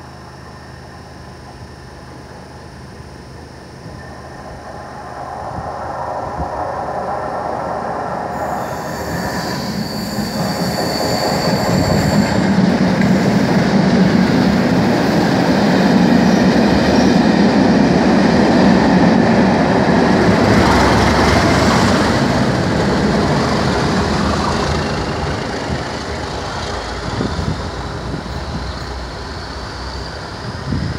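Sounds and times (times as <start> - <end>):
diesel locomotive passing: 0.0 - 30.9
high squeal: 3.8 - 14.6.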